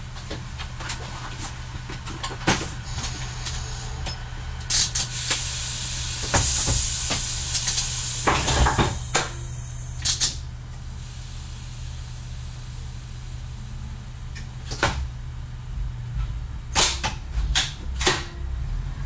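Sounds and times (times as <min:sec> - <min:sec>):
diesel railcar engine idling: 0:00.0 - 0:19.0
hiss: 0:04.7 - 0:13.7.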